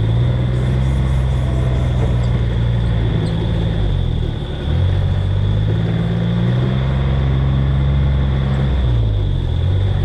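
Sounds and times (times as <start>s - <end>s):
vehicle engine droning: 0.0s - 10.0s.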